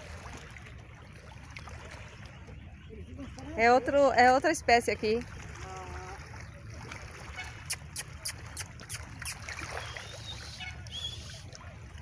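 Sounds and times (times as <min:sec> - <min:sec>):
wind and water rumble: 0:00.0 - 0:12.0
thin high bird calls: 0:07.6 - 0:11.5.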